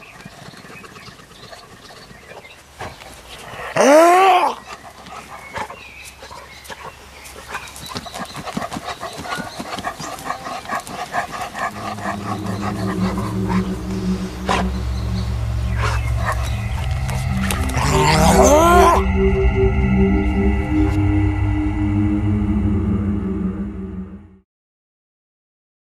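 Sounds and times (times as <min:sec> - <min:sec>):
dog digging in loose soil: 0:04.6 - 0:11.8.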